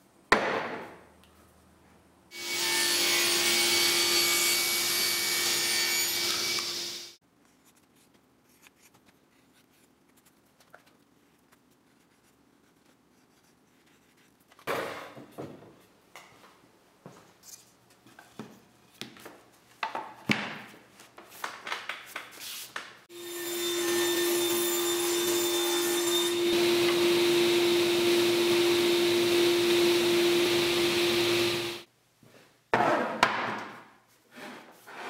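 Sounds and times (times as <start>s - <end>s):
woodworking machine humming: 23.2s - 31.9s.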